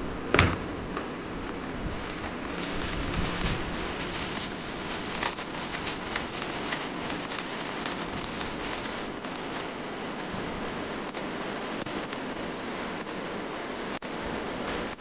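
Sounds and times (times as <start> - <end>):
steady hiss: 1.2 - 15.0
plastic wrapper crinkling: 1.8 - 10.7.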